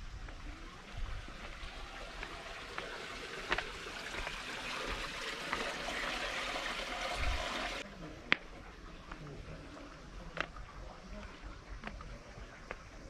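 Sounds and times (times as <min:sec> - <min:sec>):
water pouring into basin: 0:01.2 - 0:07.8.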